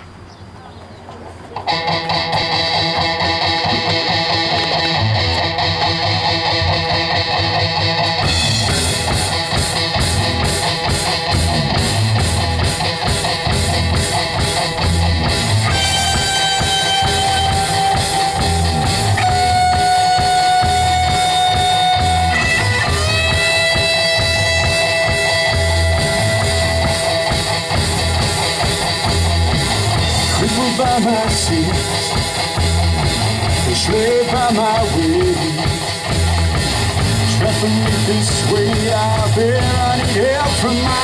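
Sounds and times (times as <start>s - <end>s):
electric guitar: 1.4s - 41.0s
drum kit: 1.6s - 41.0s
long held high notes: 15.6s - 28.5s.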